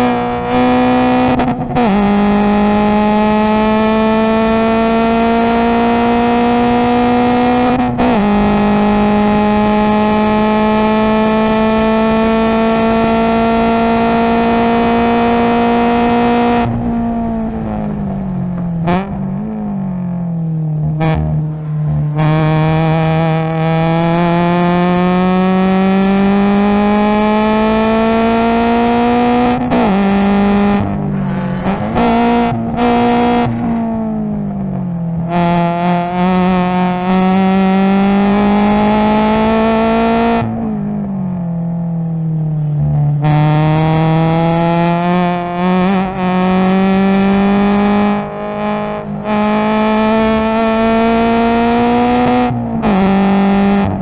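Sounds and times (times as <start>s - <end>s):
engine revs on downshifts: 0.0s - 54.0s
race car engine at full throttle: 0.0s - 54.0s.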